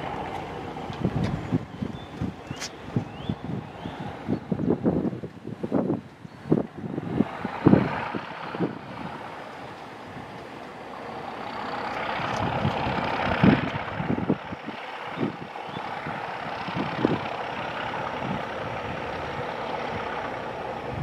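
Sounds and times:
diesel locomotive engine rumbling: 0:00.0 - 0:21.0
wind thumping on microphone: 0:00.8 - 0:09.2, 0:12.2 - 0:15.5.

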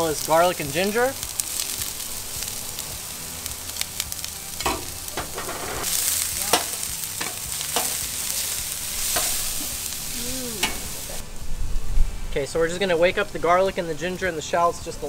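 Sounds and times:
aromatics sizzling in oil: 0:00.0 - 0:11.8
metal spatula scraping pan: 0:04.6 - 0:08.0.

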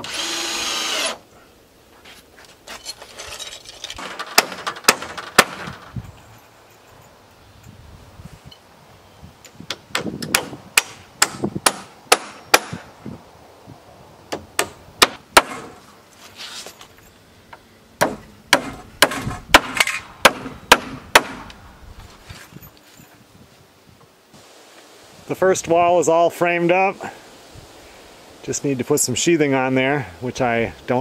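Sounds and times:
hammer driving nails into wood: 0:04.0 - 0:05.8, 0:09.7 - 0:12.8, 0:14.3 - 0:15.8, 0:18.0 - 0:21.6.

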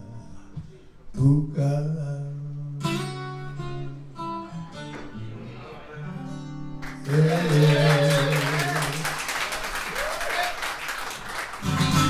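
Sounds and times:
audience clapping: 0:06.8 - 0:12.0.

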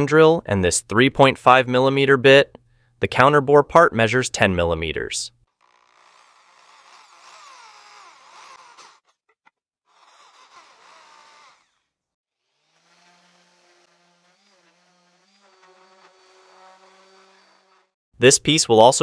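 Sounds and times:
electric drill boring into wood: 0:05.5 - 0:18.0
orbital sander buzzing: 0:05.5 - 0:18.0.

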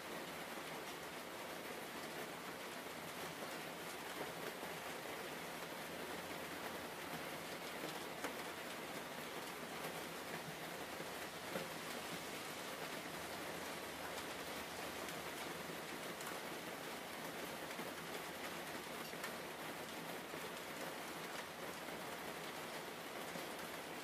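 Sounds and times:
steady rain hiss: 0:00.0 - 0:24.0
raindrop ticks: 0:17.8 - 0:19.5.

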